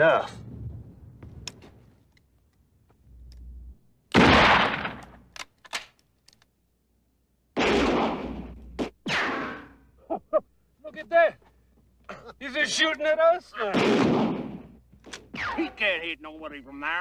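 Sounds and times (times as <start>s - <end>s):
rifle shots: 4.1s - 5.2s, 7.6s - 9.6s, 13.6s - 15.7s.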